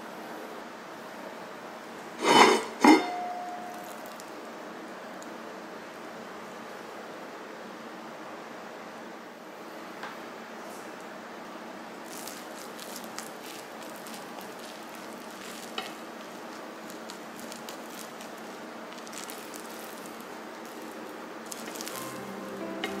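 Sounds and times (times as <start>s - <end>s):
wooden paddle scraping rice: 2.2s - 2.9s
rice sizzling in a pot: 12.0s - 23.0s.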